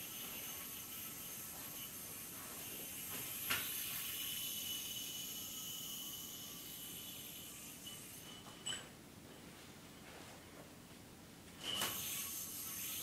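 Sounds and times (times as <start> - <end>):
yoyo whirring: 0.0 - 8.9, 11.6 - 13.0.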